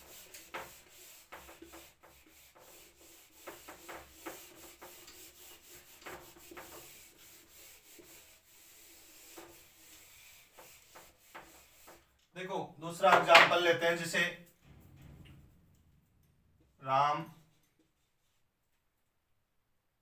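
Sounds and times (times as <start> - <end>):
eraser rubbing on whiteboard: 0.0 - 12.2.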